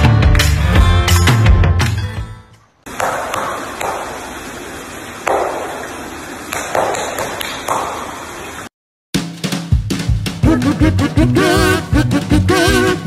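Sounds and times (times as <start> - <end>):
seal flipper slapping water: 2.9 - 8.5
steady hiss: 2.9 - 8.7
water splashing: 2.9 - 8.7.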